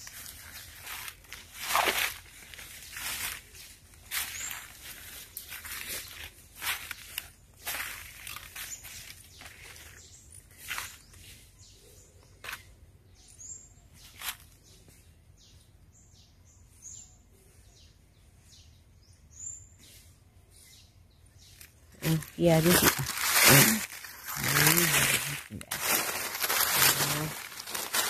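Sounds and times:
footsteps crunching through dry leaves: 0:00.0 - 0:12.7, 0:14.0 - 0:15.0, 0:21.5 - 0:28.0.

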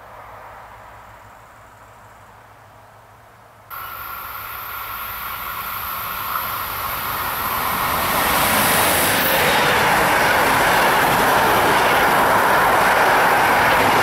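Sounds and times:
steady high whine: 0:03.7 - 0:14.0
train rolling on rails: 0:03.7 - 0:14.0.

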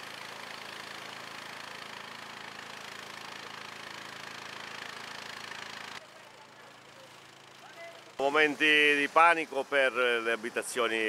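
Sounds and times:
even hiss: 0:08.2 - 0:11.0.

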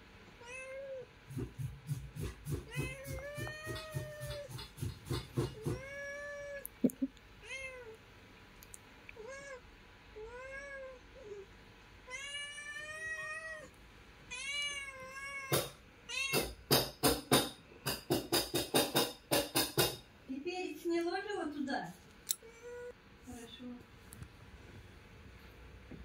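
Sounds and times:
kittens mewing: 0:00.4 - 0:08.0, 0:14.3 - 0:16.8.

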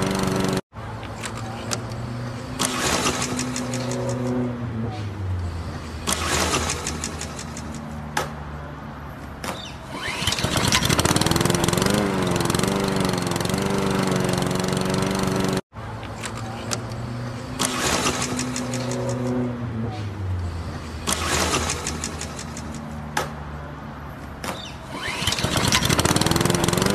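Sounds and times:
lawn mower engine running: 0:00.0 - 0:00.6, 0:10.0 - 0:15.6, 0:25.0 - 0:26.9
pull-start cord pulls: 0:10.0 - 0:15.3, 0:25.0 - 0:26.9.

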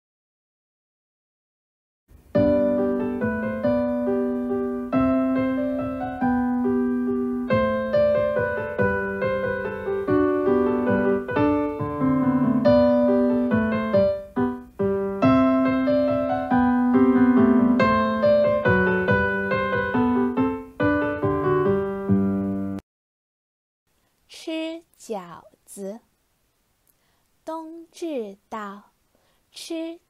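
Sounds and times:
piano melody: 0:02.1 - 0:22.8
low sustained keyboard notes: 0:02.2 - 0:22.8.

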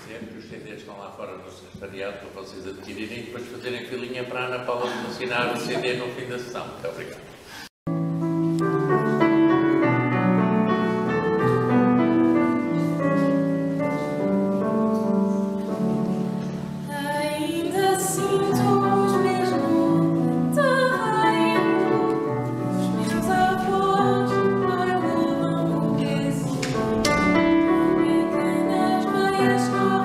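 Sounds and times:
piano accompaniment: 0:07.9 - 0:30.0
person singing with vibrato: 0:16.8 - 0:30.0.

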